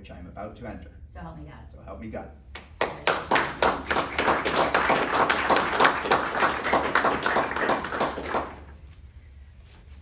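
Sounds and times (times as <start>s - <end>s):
audience applauding: 2.8s - 8.8s.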